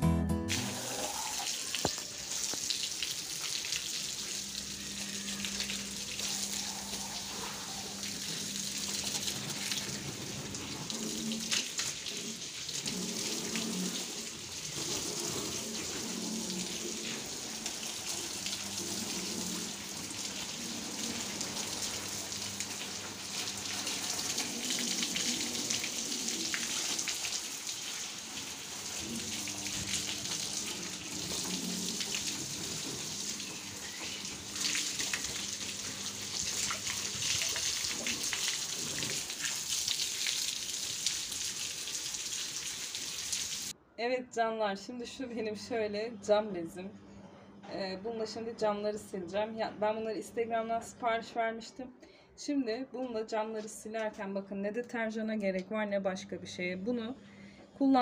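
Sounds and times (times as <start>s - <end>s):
hose spraying water on glass: 0.5s - 43.7s
water splashing on stone floor: 0.5s - 43.7s.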